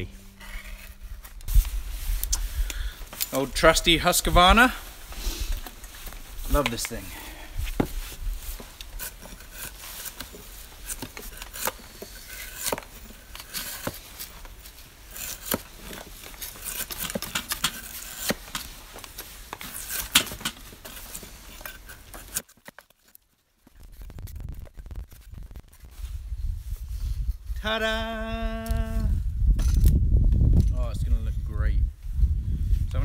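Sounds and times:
drawknife scraping bark: 8.5 - 18.7.

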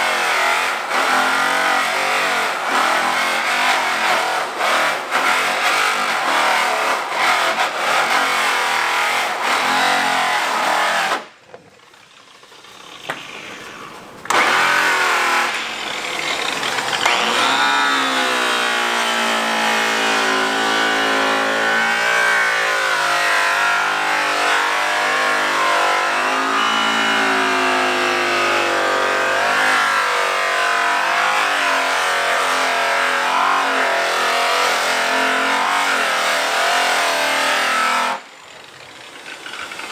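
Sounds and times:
electric buffers whining: 11.2 - 33.8.

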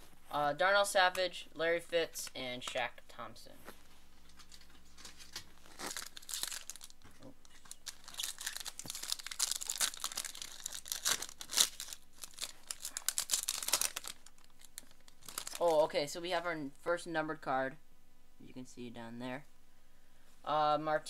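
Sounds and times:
plastic wrapper tearing and crinkling: 4.4 - 15.9.

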